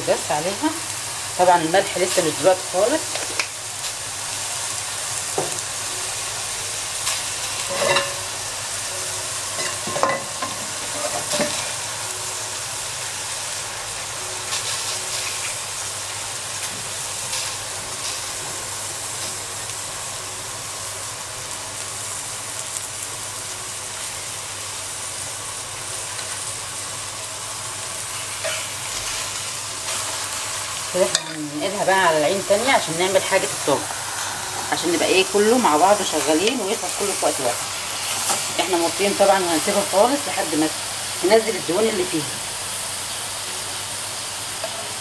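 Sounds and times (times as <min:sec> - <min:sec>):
meat sizzling in a pot: 0:00.0 - 0:45.0.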